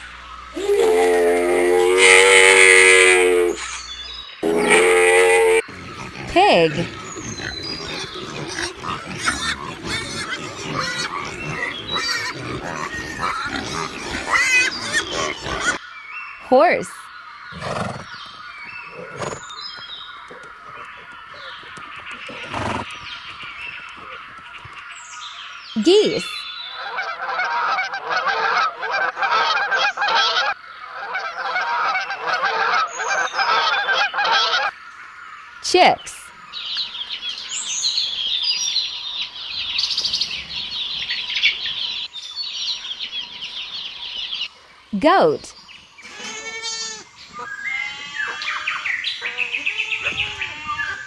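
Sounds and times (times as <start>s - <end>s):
geese honking: 0.0s - 3.8s, 4.4s - 15.8s, 25.9s - 34.8s
pigs squealing: 0.5s - 3.8s, 4.4s - 15.8s, 18.9s - 22.9s, 46.0s - 51.0s
pigs grunting: 4.4s - 15.8s, 17.5s - 24.3s.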